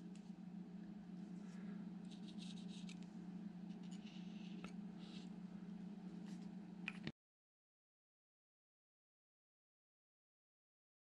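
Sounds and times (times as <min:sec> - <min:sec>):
low steady hum: 0:00.0 - 0:07.2
marker scratching on thread: 0:02.0 - 0:03.0.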